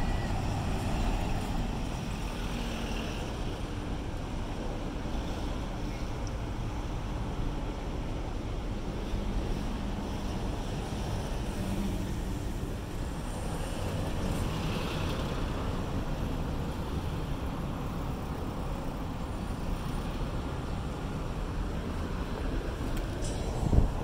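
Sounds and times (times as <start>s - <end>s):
wind buffeting microphone: 20.8s - 24.0s.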